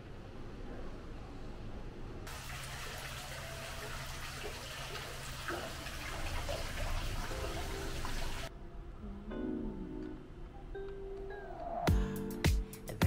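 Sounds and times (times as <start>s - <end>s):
fountain jet splashing: 2.3s - 8.5s.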